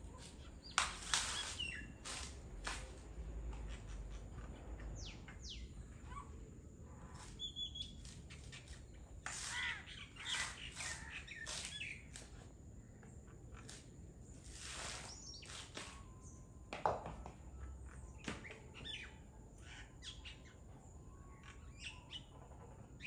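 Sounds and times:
myna harsh rasping calls and whistles: 7.1 - 12.1.

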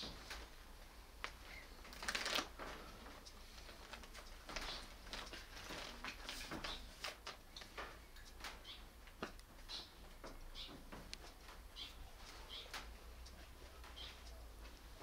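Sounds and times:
paper rustling: 1.8 - 7.4.

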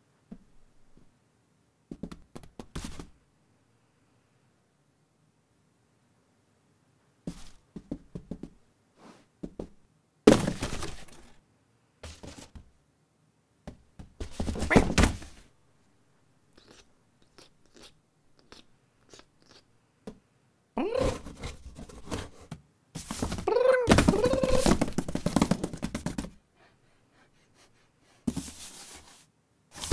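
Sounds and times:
cardboard box knocking and scraping: 10.3 - 11.3, 12.0 - 12.6, 14.1 - 15.3, 21.0 - 26.4, 28.3 - 28.9.

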